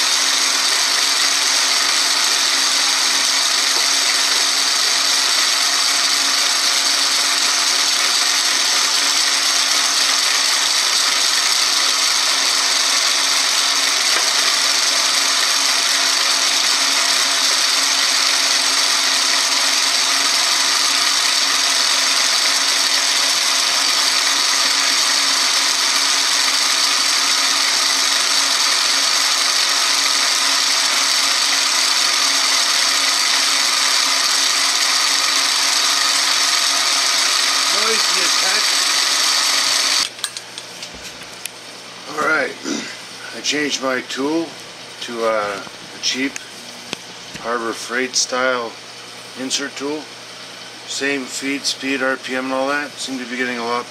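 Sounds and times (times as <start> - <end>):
metal lathe cutting steel: 0.0 - 40.7, 50.8 - 53.8.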